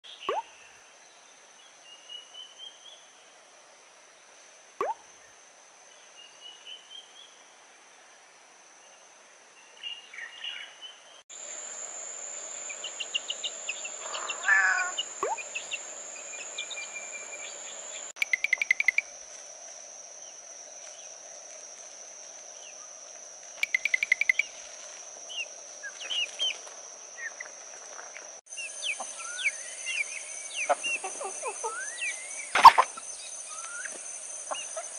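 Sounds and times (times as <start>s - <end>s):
high insect drone: 0.1s - 34.9s
short bird chirps: 0.2s - 0.6s.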